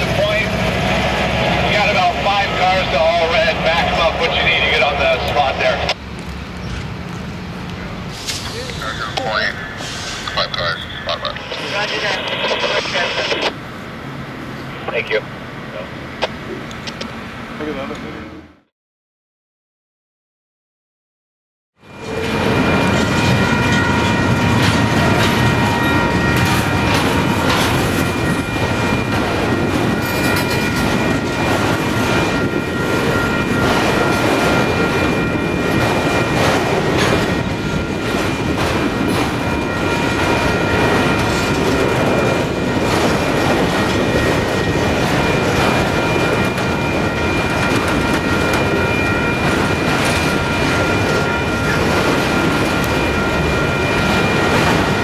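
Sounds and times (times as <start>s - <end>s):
freight train rumbling past: 0.0s - 18.6s, 21.8s - 55.0s
steady high-pitched tones: 1.4s - 6.0s, 8.4s - 13.6s, 21.9s - 55.0s.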